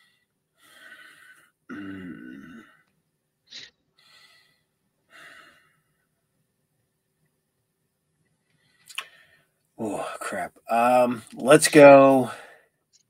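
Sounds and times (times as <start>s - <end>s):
man groaning: 1.7s - 2.7s
man sighing and breathing out: 1.7s - 2.8s.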